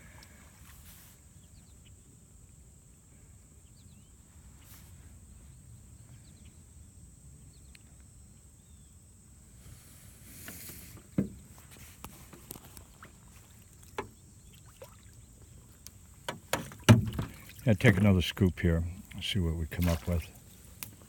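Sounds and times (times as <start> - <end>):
brief hiss: 9.6 - 12.0.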